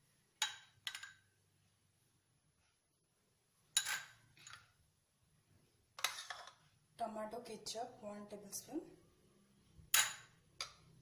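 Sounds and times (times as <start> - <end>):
metal spoon clinking on dishes: 0.4 - 1.3, 3.7 - 4.6, 9.9 - 10.8.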